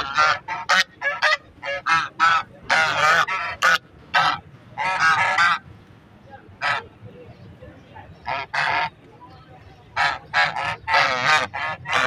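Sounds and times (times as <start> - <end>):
geese honking: 0.0 - 5.6, 6.6 - 7.0, 8.2 - 9.0, 9.8 - 12.0.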